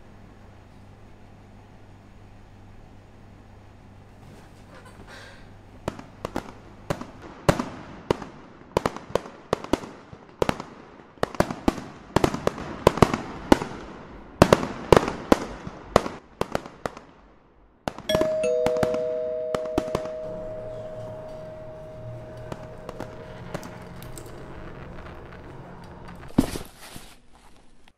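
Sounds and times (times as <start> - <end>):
fireworks bangs and pops: 5.8 - 18.1, 22.2 - 27.1.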